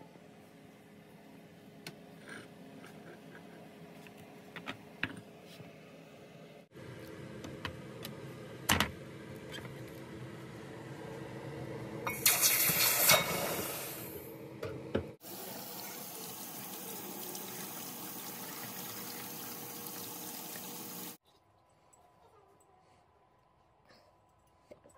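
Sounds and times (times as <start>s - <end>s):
hot metal hissing in water: 12.1s - 14.2s
tap water running into sink: 15.2s - 21.2s.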